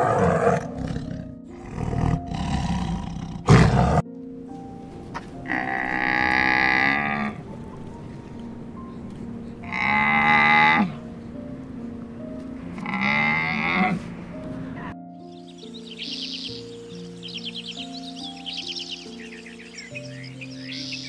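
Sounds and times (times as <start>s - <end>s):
tiger roaring and growling: 0.0s - 4.1s
camel calls: 5.4s - 7.6s, 9.6s - 11.0s.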